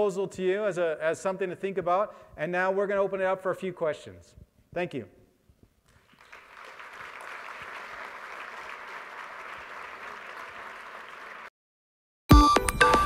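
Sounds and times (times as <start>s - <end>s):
audience applauding: 5.9s - 11.5s.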